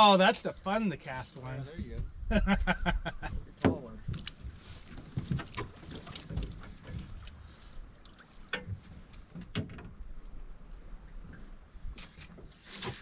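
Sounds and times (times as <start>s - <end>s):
low wind rumble: 1.6s - 12.0s
small waves lapping against hull: 3.2s - 13.0s.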